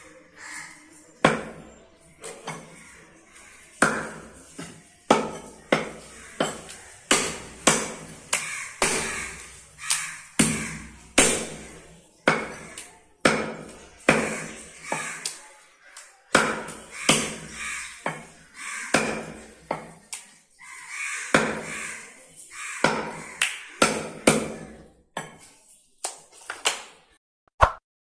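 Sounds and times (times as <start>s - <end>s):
cleaver chopping on wooden block: 3.8s - 11.7s, 12.3s - 15.3s, 16.3s - 18.3s, 18.9s - 20.0s, 21.3s - 21.8s, 22.8s - 25.4s.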